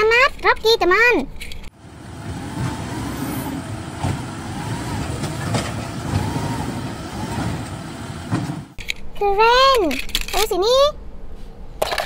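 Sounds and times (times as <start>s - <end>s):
garbage truck engine running: 1.7s - 8.8s
short clunks: 2.2s - 8.8s.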